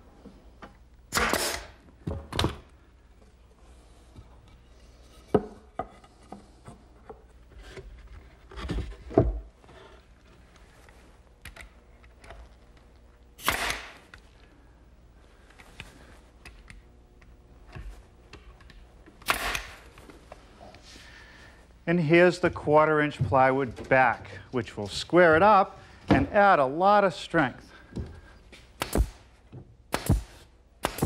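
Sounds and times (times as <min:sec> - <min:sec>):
pneumatic nailer shots: 0:01.1 - 0:02.6, 0:13.4 - 0:14.1, 0:19.2 - 0:19.9, 0:28.8 - 0:29.3, 0:29.9 - 0:31.0.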